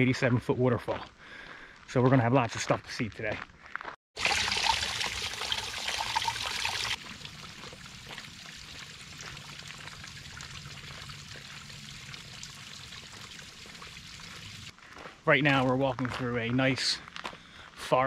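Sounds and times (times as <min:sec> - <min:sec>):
water trickling down a boulder: 0:04.2 - 0:14.7.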